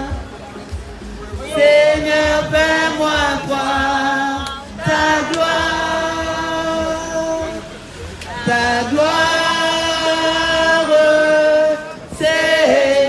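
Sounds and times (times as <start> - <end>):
group of voices singing: 0.0 - 13.0.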